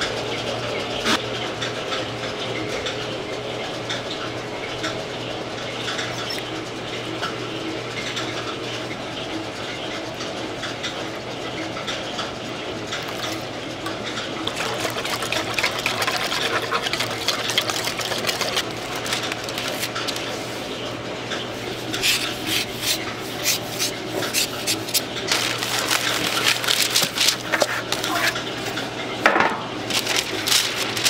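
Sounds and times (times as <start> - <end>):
wire whisk clicking and scraping in metal bowl: 14.4 - 20.3.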